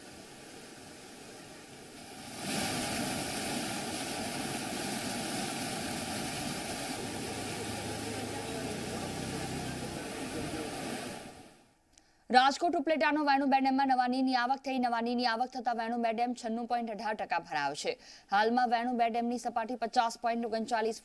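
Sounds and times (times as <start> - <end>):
rushing river water: 0.0 - 11.6.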